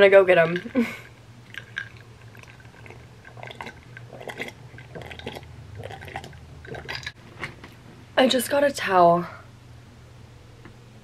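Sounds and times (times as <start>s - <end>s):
chewing: 1.4s - 7.2s.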